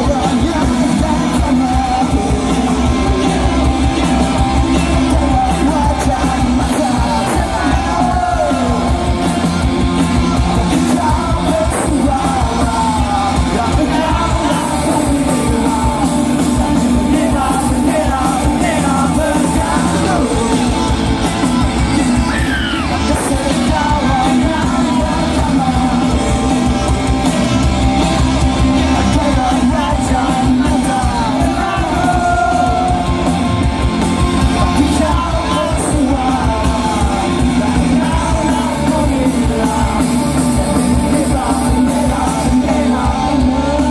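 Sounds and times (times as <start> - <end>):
crowd yelling along: 0.0 - 43.9
live rock band playing: 0.0 - 43.9
person singing: 0.0 - 43.9.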